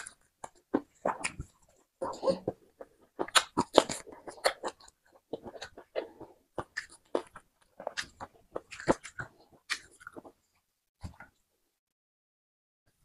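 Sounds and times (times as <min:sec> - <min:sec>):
wet chewing and crunching: 0:00.0 - 0:10.4.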